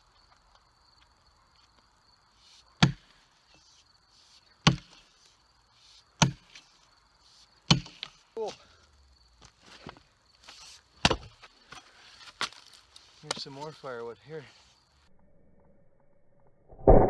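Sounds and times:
axe chopping into log: 0:02.8 - 0:03.2, 0:04.6 - 0:05.0, 0:06.2 - 0:06.6, 0:07.7 - 0:08.2, 0:11.0 - 0:11.8.

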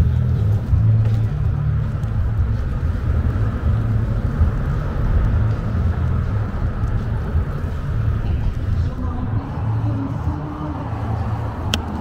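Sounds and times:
vehicle engine rumble: 0:00.0 - 0:12.0.

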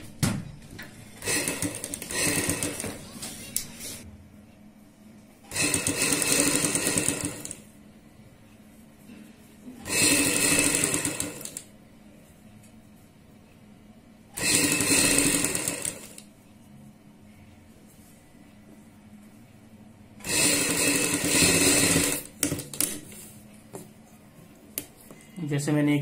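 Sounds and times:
sewing machine stitching: 0:01.2 - 0:03.2, 0:05.5 - 0:07.6, 0:09.8 - 0:11.7, 0:14.4 - 0:16.2, 0:20.2 - 0:22.7.

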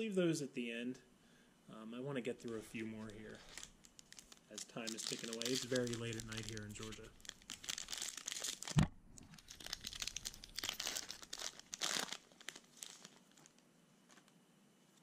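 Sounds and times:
foil wrapper crinkling and tearing: 0:02.4 - 0:14.3
dull thump: 0:08.8 - 0:09.2.

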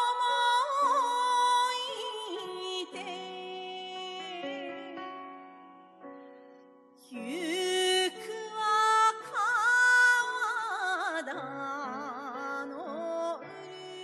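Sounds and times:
person singing with vibrato: 0:07.1 - 0:14.0.

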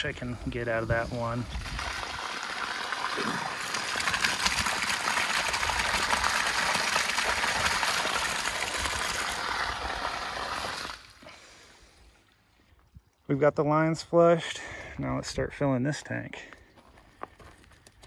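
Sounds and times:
water gushing onto dirt: 0:00.0 - 0:11.3.

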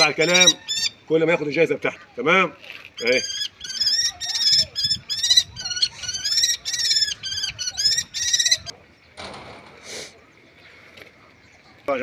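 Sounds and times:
kestrel calling harsh notes: 0:00.0 - 0:01.0, 0:03.0 - 0:08.7.

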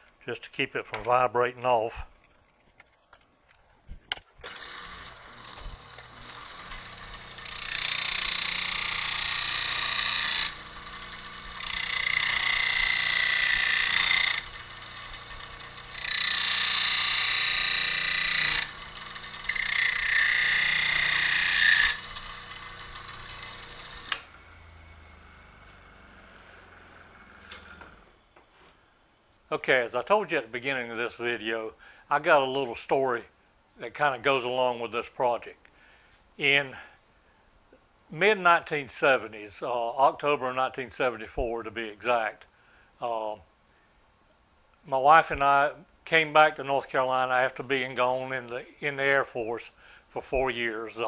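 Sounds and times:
electric motor spinning wheel: 0:04.4 - 0:28.0
motor running down: 0:04.4 - 0:28.0.

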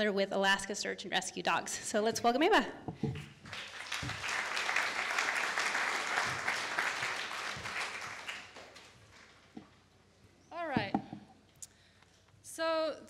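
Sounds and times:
audience applauding: 0:03.2 - 0:09.4.

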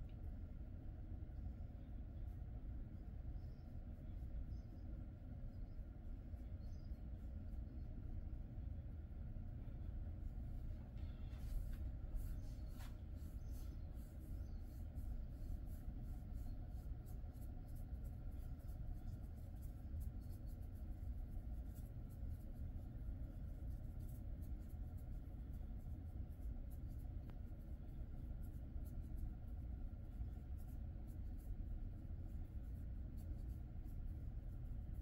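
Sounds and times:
low room hum: 0:00.0 - 0:35.0
fingers scratching dog fur: 0:10.7 - 0:35.0.

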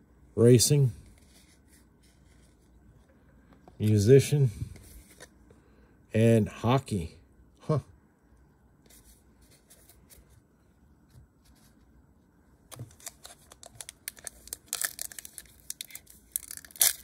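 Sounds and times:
foil wrapper tearing and crinkling: 0:12.9 - 0:17.0.

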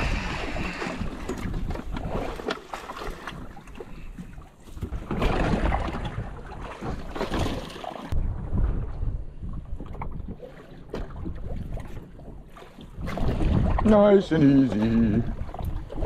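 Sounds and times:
wind on microphone: 0:00.0 - 0:02.4, 0:08.1 - 0:16.0.

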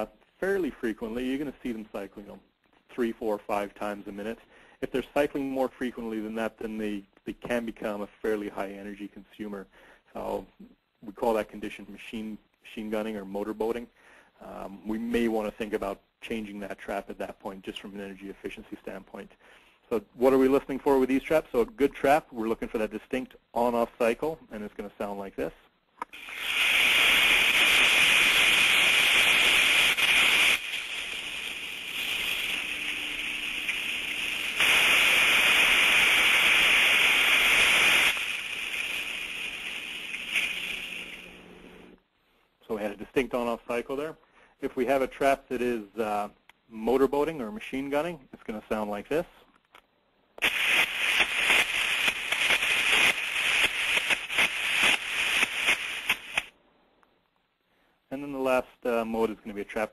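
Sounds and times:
steam trap hissing discharge: 0:26.1 - 0:41.6, 0:50.4 - 0:56.5.

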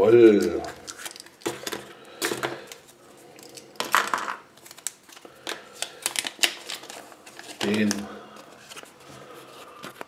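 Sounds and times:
paper rustling: 0:04.6 - 0:10.0.

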